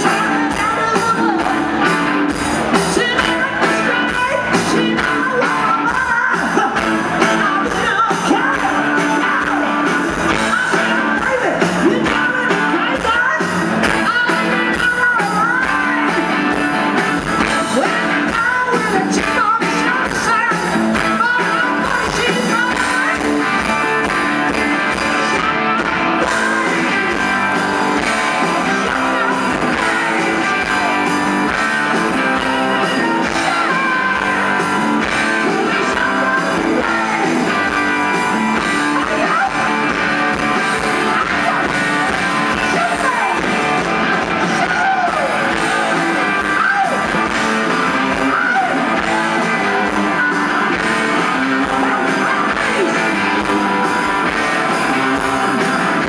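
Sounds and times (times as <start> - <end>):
distorted electric guitars: 0.0 - 56.0
drums: 0.0 - 56.0
man singing: 2.6 - 16.4, 17.2 - 43.6, 44.2 - 56.0.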